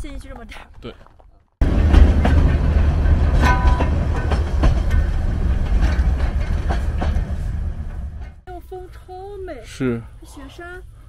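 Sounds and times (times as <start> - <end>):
wheels clicking over rail joints: 0.1 - 8.4
train rumbling on rails: 1.6 - 8.5.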